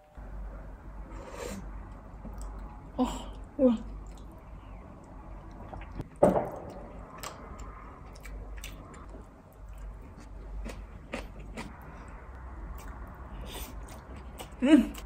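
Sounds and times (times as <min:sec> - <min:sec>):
low room hum: 0:00.0 - 0:15.0
chewing: 0:03.8 - 0:06.0, 0:06.6 - 0:15.0
loud knock: 0:06.2 - 0:06.8.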